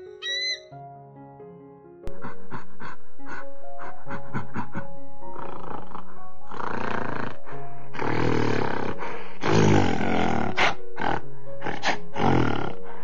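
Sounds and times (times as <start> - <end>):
background music held chord: 0.0 - 13.0
large animal rough calls: 5.2 - 13.0.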